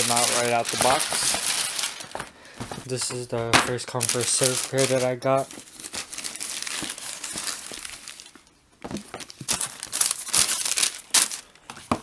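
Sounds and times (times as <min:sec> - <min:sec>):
tissue paper crinkling: 0:00.0 - 0:08.5, 0:09.1 - 0:11.6.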